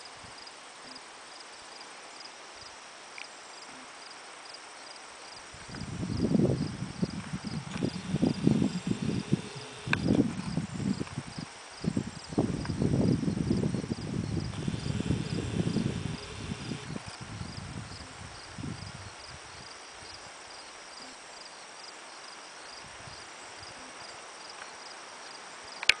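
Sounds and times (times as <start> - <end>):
crickets chirping: 0.0 - 26.0
low rumbling on microphone: 5.6 - 19.6.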